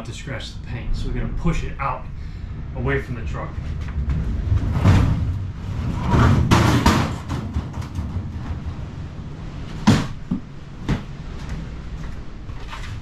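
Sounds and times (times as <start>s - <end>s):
cabinet scraping across wooden floor: 3.7s - 8.9s.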